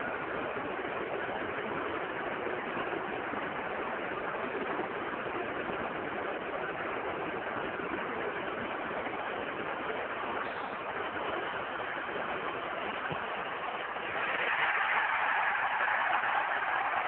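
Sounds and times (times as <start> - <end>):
stadium crowd din: 12.9 - 17.0.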